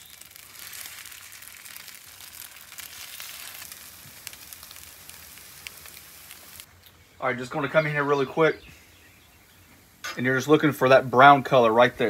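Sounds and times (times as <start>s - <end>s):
food sizzling on a griddle: 0.0s - 6.7s.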